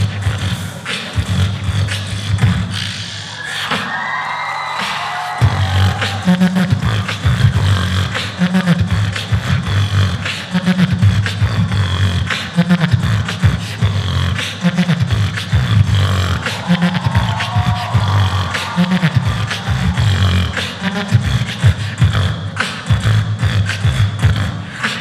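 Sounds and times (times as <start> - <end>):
amplified beatboxing: 0.0 - 25.0.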